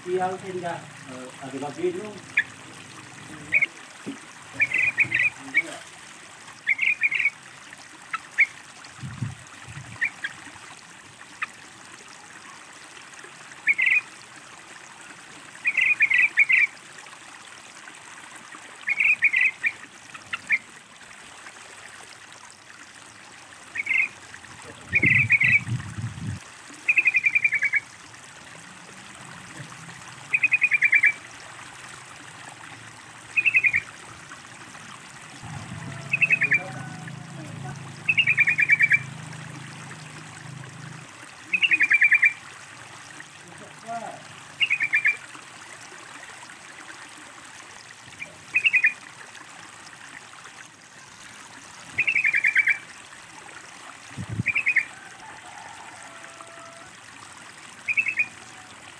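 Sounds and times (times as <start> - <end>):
trickling water: 0.0 - 58.9
bird chattering calls: 4.6 - 5.7, 25.0 - 25.6, 33.4 - 33.9, 36.0 - 36.9, 38.0 - 39.1.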